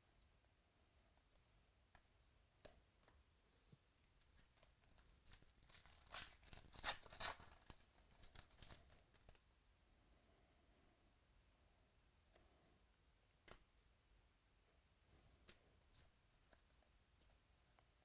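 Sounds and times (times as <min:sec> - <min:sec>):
foil wrapper tearing and crinkling: 0:05.2 - 0:09.3
faint clicks of cards handled: 0:13.4 - 0:13.8.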